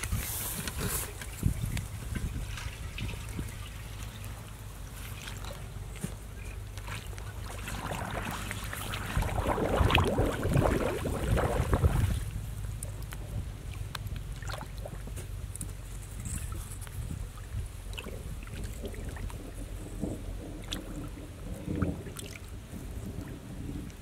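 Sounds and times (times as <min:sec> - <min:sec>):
steady low rumble: 0:00.0 - 0:24.0
hands splashing in water: 0:06.8 - 0:12.3.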